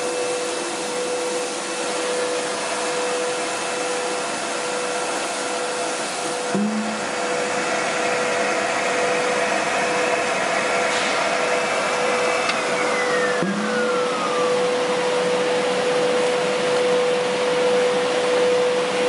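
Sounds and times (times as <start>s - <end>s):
machine drone with whine: 0.0s - 19.0s
whine falling in pitch: 6.4s - 19.0s.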